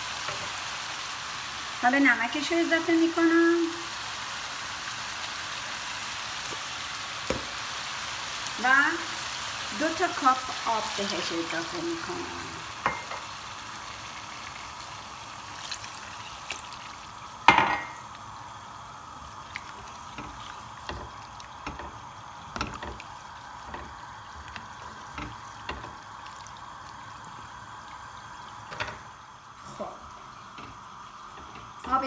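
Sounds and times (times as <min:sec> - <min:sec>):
spatula stirring food in water: 0:13.8 - 0:17.3, 0:19.0 - 0:28.0.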